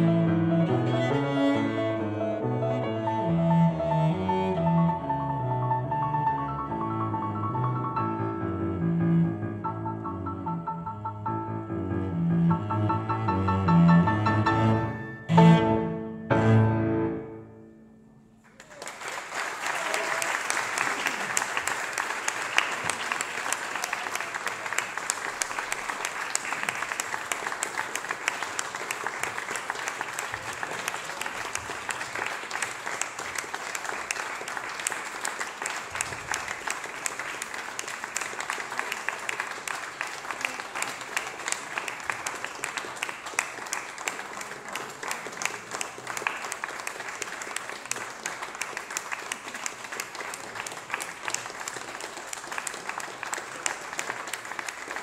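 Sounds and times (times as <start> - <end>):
audience applauding: 18.4 - 55.0.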